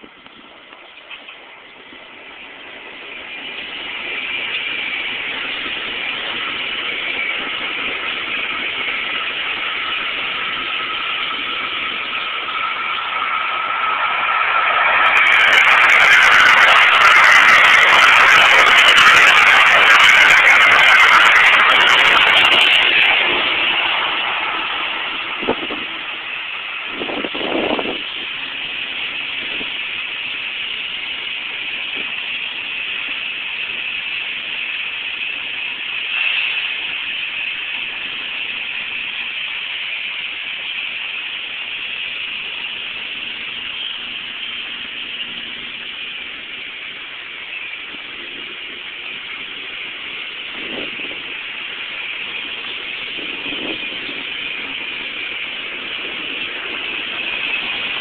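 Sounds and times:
train car hiss and hum: 0.0 - 58.0
train rolling past: 0.0 - 58.0.

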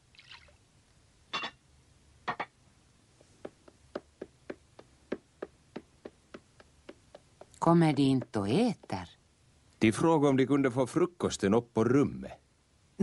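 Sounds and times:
footsteps on wooden floor: 3.2 - 9.0.

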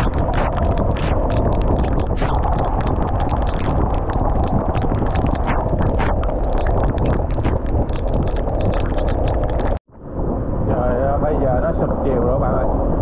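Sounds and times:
raindrops tapping: 0.0 - 9.8
wind buffeting microphone: 0.0 - 13.0.

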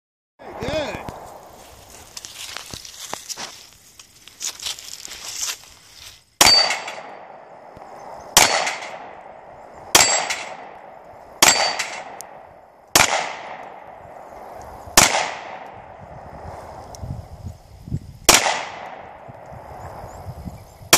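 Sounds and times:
steel plate ringing: 6.4 - 7.1, 10.0 - 10.6, 11.4 - 12.1
handgun shots: 8.4 - 9.1, 10.0 - 10.7, 11.4 - 12.4, 13.0 - 13.6, 18.3 - 19.0.

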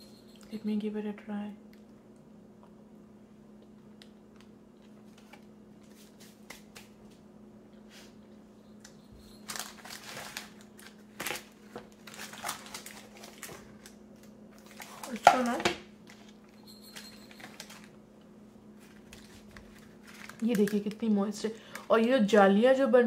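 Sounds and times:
steady low hum: 0.0 - 23.0
wrapping crinkling and rustling: 9.2 - 18.0, 18.7 - 22.4.

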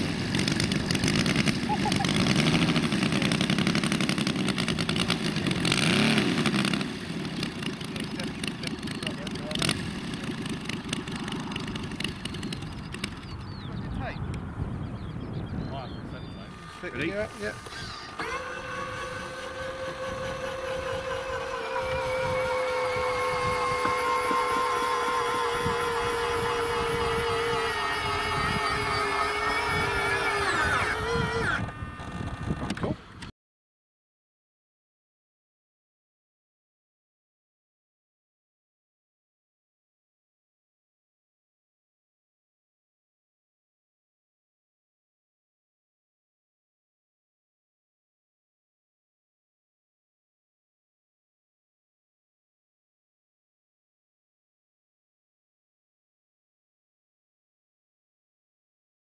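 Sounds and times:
electric landing gear whining: 0.0 - 13.5, 15.7 - 33.3
model aircraft engine running: 0.0 - 14.0, 15.7 - 33.3.

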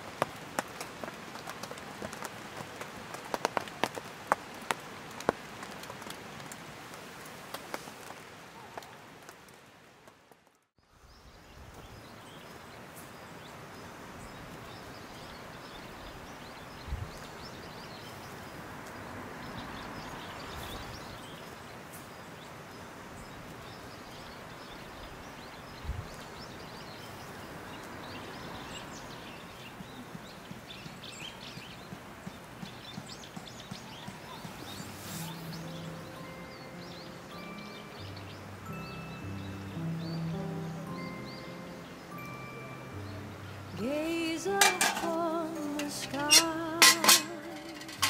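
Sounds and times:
steady rain in woods: 0.0 - 48.0.

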